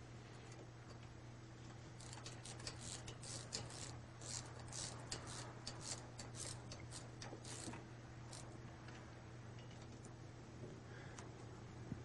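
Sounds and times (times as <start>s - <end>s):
ratchet wrench clicking: 2.0s - 8.5s.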